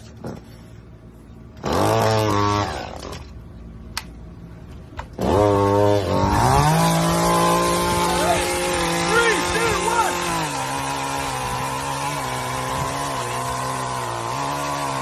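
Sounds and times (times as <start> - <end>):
pruning saw whining: 1.5 - 3.4, 5.0 - 15.0
saw cutting into log: 1.6 - 3.2, 5.2 - 15.0.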